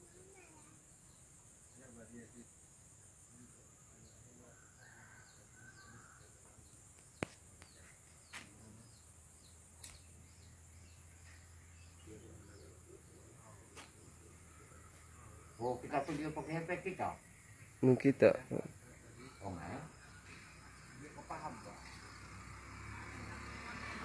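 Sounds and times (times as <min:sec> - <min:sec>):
bird chirps: 0:03.3 - 0:22.4.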